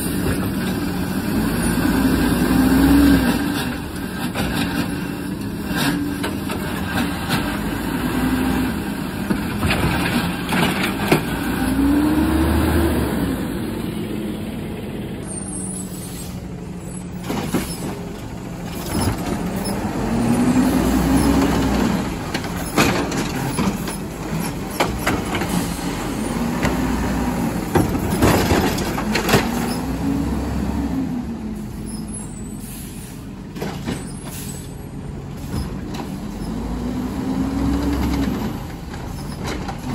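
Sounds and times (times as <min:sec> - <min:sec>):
diesel engine idling and revving: 0:00.0 - 0:39.9
sharp knocks and clatter: 0:22.2 - 0:25.6, 0:27.7 - 0:29.8.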